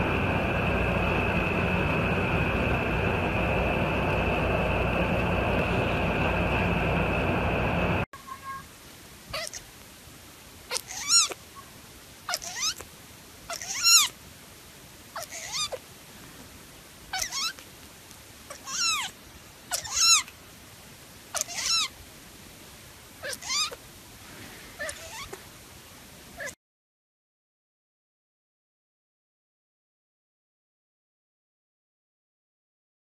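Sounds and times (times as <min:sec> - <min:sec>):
kitten mewing: 0:09.3 - 0:09.7, 0:10.7 - 0:11.7, 0:12.3 - 0:12.9, 0:13.5 - 0:14.2, 0:15.1 - 0:15.9, 0:17.1 - 0:17.7, 0:18.5 - 0:20.3, 0:21.3 - 0:21.9, 0:23.2 - 0:23.8, 0:24.8 - 0:25.4, 0:26.4 - 0:26.6.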